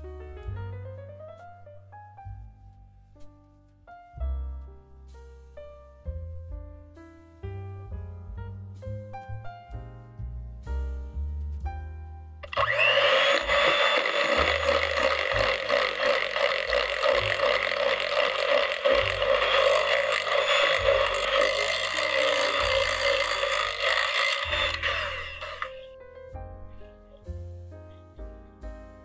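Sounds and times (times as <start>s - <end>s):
soft background music: 0.0s - 29.0s
electric hand mixer running: 12.4s - 25.8s.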